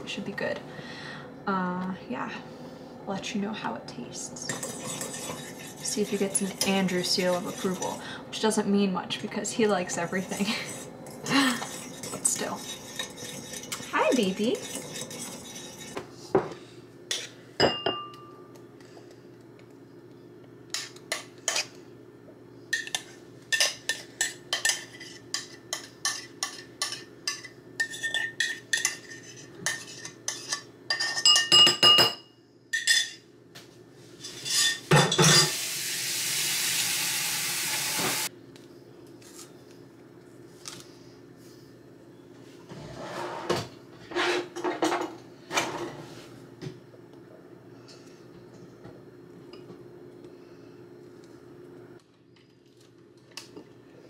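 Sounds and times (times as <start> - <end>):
metal spoon scraping pot and bowls: 4.4 - 8.0, 10.1 - 16.0.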